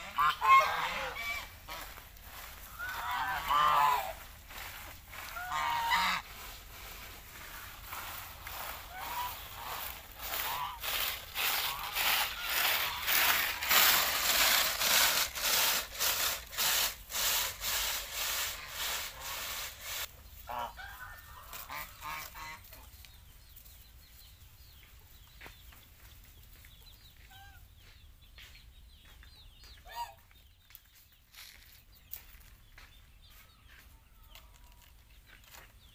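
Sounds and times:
geese honking: 0:00.0 - 0:06.6, 0:07.3 - 0:14.4, 0:18.1 - 0:22.9.

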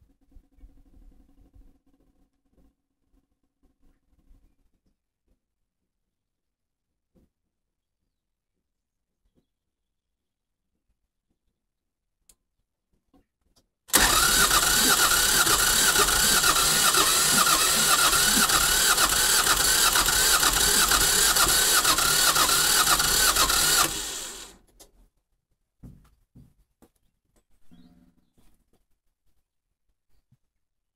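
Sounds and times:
engine cranking on starter motor: 0:13.9 - 0:24.6.

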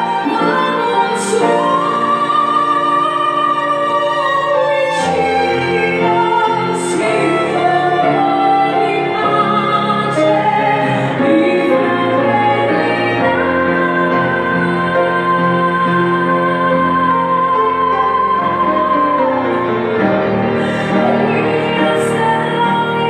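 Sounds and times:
woman singing operatically: 0:00.0 - 0:19.8, 0:21.0 - 0:23.0
cello: 0:00.0 - 0:23.0
piano: 0:00.0 - 0:23.0
violin: 0:00.0 - 0:23.0.

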